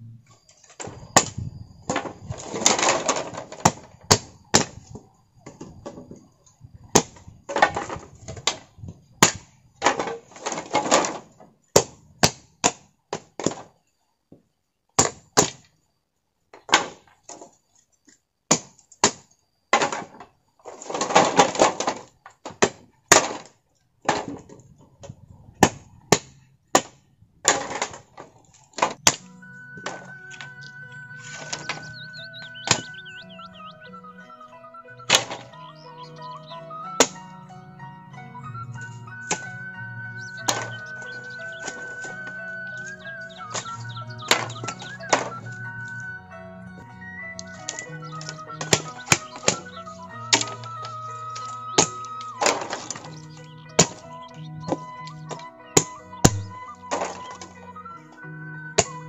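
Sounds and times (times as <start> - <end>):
rustling and scraping: 0.2 - 6.3, 9.8 - 11.5, 19.8 - 25.9, 27.4 - 32.8, 40.3 - 46.0, 46.7 - 55.5
sharp chops and whacks: 55.8 - 57.2.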